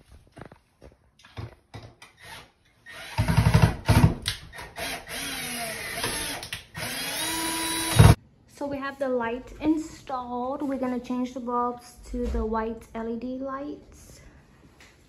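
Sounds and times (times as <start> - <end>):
cordless drill whine: 4.8 - 8.2.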